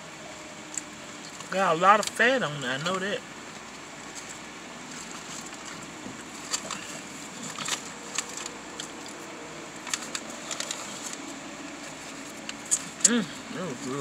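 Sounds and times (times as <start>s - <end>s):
steady background noise: 0.0s - 14.0s
paper wrapper crinkling: 4.0s - 14.0s.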